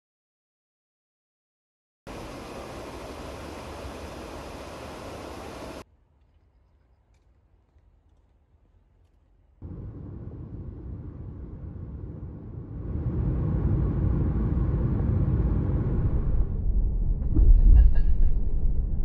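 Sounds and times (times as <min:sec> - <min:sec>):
road and tyre rumble: 0:09.6 - 0:16.6.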